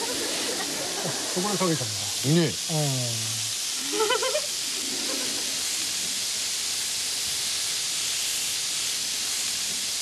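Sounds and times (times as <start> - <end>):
sauce sizzling on a hot pan: 0.0 - 10.0.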